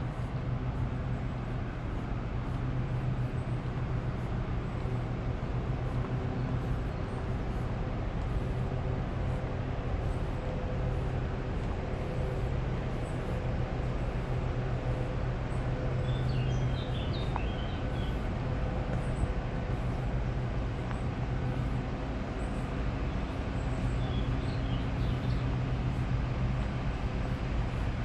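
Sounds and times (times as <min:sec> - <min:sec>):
vehicles rumbling: 0:00.0 - 0:28.0
bird chirps: 0:16.0 - 0:18.2.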